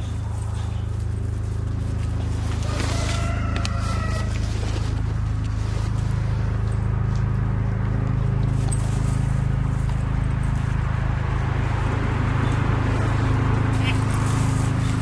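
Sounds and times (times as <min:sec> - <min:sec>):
helicopter rotor drone: 0:03.9 - 0:15.0.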